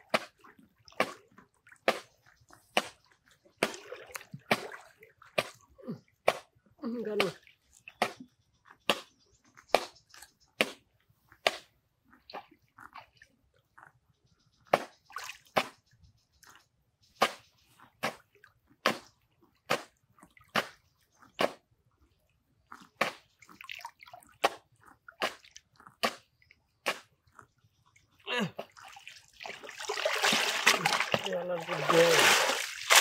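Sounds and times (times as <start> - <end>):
water splashing: 0.0 - 6.4, 28.4 - 33.0.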